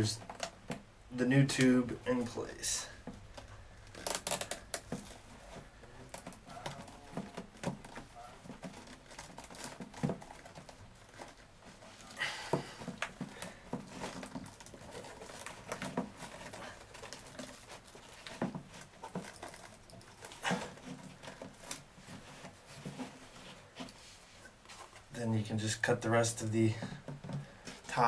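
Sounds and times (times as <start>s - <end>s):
cloth and plastic tube rustling: 1.5s - 28.0s.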